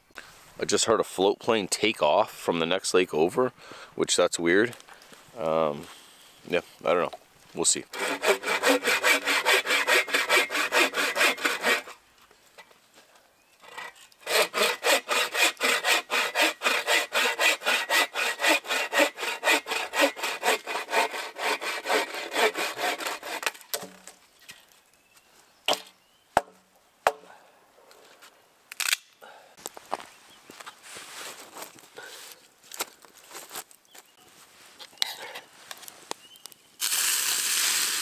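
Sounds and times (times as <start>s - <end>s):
hand saw cutting log: 7.9s - 12.0s, 13.6s - 23.9s.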